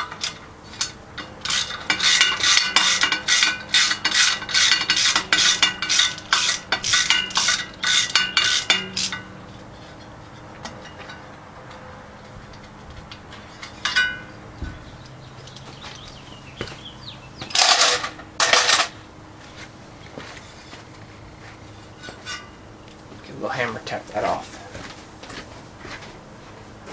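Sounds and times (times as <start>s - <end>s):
loud metallic clatters: 0.0s - 10.0s, 12.6s - 14.8s, 17.4s - 19.0s
metal clink: 0.1s - 9.4s, 13.6s - 14.4s, 17.5s - 18.9s
ratchet wrench clicking: 0.2s - 9.3s.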